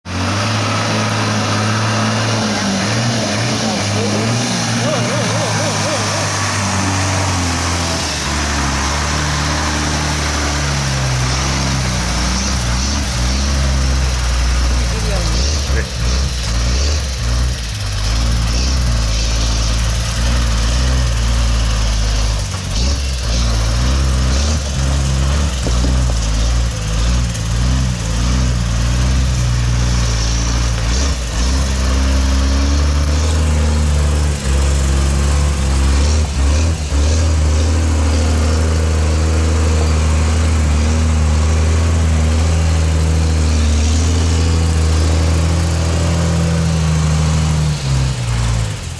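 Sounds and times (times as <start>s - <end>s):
truck engine running under load: 0.1s - 48.9s.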